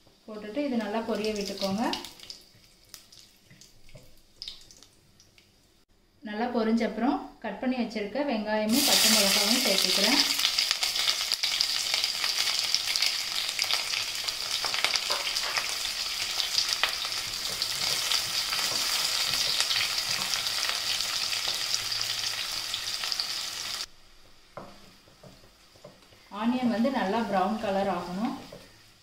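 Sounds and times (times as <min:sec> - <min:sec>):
onions sizzling in hot oil: 0:08.7 - 0:29.0.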